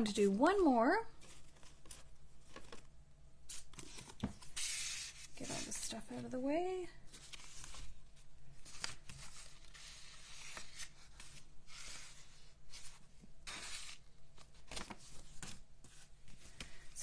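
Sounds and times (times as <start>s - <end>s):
paper rustling and sliding: 3.5s - 5.9s, 7.1s - 17.0s.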